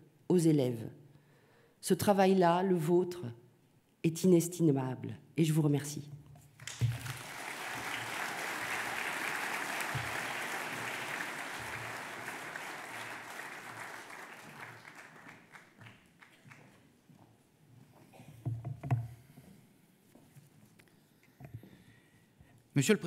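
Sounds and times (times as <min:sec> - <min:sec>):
audience applauding: 0:06.6 - 0:16.8.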